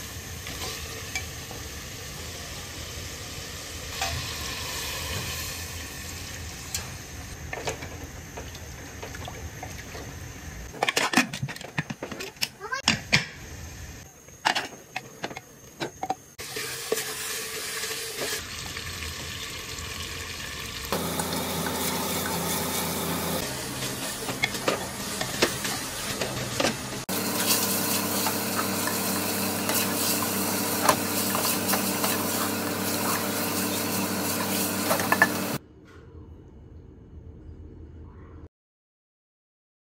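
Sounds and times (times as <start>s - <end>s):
curry sizzling in a pot: 0.0s - 7.4s, 16.4s - 35.6s.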